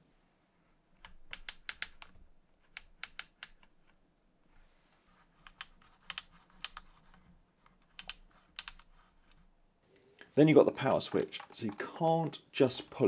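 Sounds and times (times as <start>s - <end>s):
dial clicking through detents: 1.0s - 4.0s, 5.5s - 7.0s, 7.9s - 9.4s.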